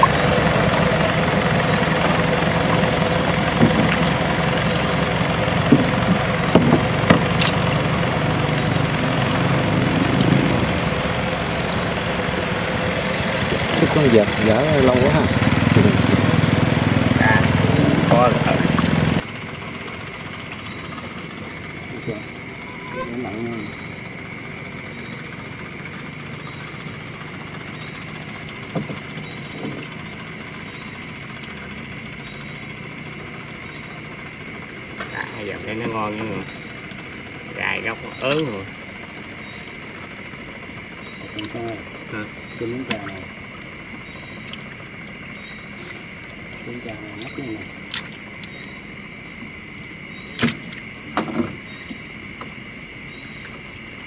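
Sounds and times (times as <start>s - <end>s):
night insects chirring: 0.0s - 54.0s
small boat engine idling: 0.0s - 54.0s
knocks against boat hull: 5.7s - 7.3s, 50.4s - 51.6s.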